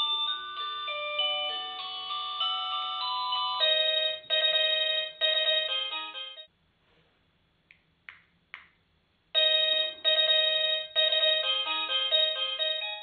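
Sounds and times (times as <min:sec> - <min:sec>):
doorbell chime melody: 0:00.0 - 0:06.5, 0:09.4 - 0:13.0.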